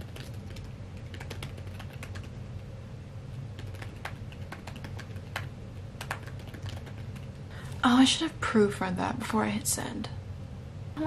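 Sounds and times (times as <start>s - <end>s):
computer keyboard typing: 0.0s - 2.3s, 3.6s - 7.4s
low steady hum: 0.0s - 11.0s.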